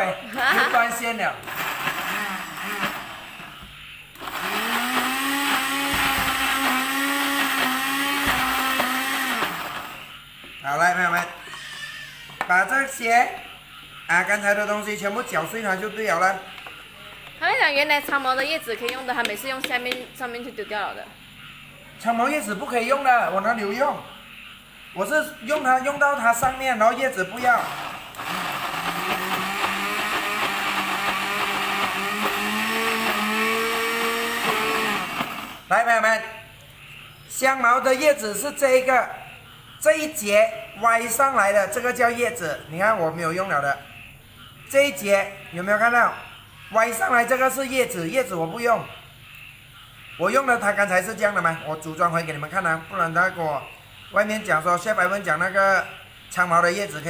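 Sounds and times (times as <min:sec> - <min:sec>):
blender motor grinding: 0:01.4 - 0:03.5, 0:04.2 - 0:10.1, 0:27.4 - 0:35.7.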